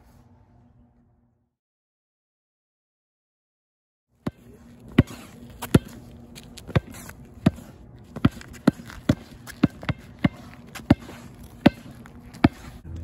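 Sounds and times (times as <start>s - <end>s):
basketball bouncing on asphalt: 4.2s - 12.9s.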